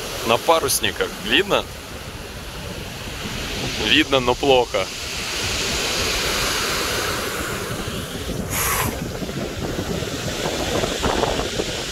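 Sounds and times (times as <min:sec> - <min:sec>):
surf on a pebble shore: 0:00.0 - 0:11.9
wind buffeting microphone: 0:01.6 - 0:04.2, 0:04.9 - 0:11.9
brief sharp hiss: 0:08.5 - 0:09.1.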